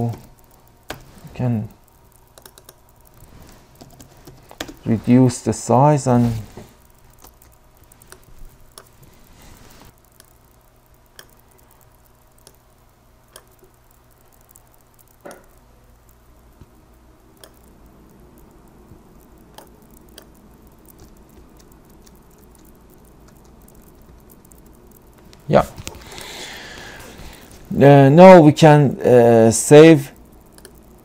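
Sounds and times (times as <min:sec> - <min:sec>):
computer mouse clicks: 0:00.0 - 0:01.2, 0:01.8 - 0:04.8, 0:06.6 - 0:12.7, 0:13.3 - 0:15.4, 0:17.4 - 0:27.6, 0:30.2 - 0:31.0
low steady hum: 0:00.0 - 0:31.0.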